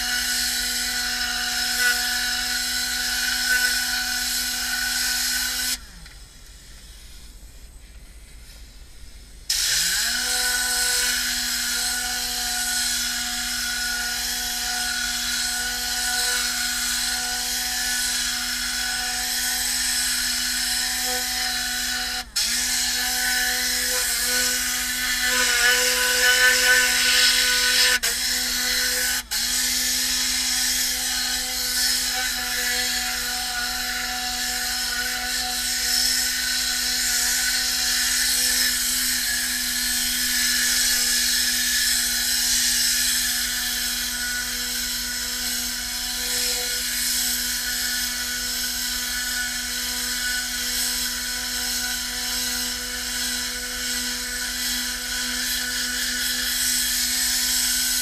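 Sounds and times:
compressed air hissing: 0:02.8 - 0:09.7.

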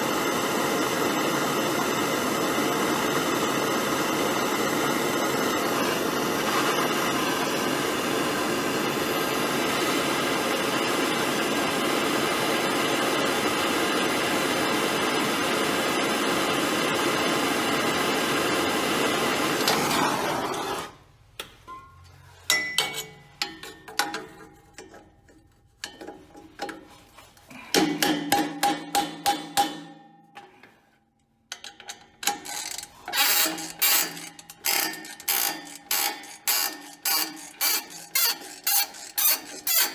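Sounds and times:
gas torch hissing: 0:00.0 - 0:21.0
ratchet wrench clicking: 0:31.5 - 0:39.9.

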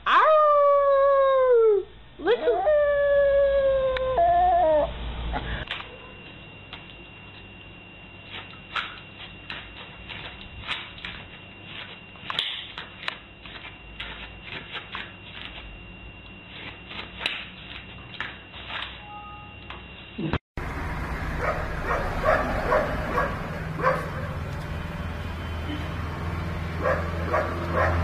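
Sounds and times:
faint high whine: 0:04.9 - 0:26.9.

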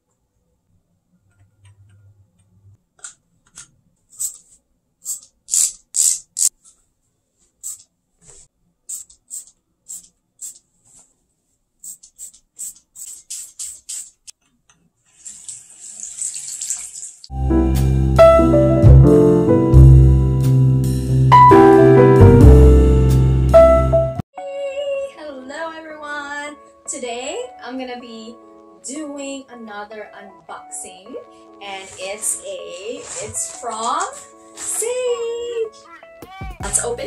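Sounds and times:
spray bottle spritzing: 0:04.2 - 0:06.5, 0:07.6 - 0:07.9, 0:08.9 - 0:10.6, 0:11.8 - 0:14.3
faucet running into sink: 0:15.2 - 0:17.3.

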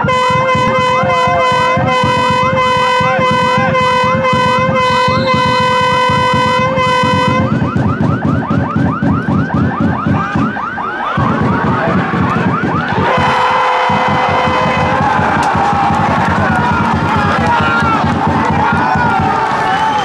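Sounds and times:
held horn tone: 0:00.0 - 0:08.3, 0:09.0 - 0:19.9
rising siren whoop: 0:00.1 - 0:20.0.

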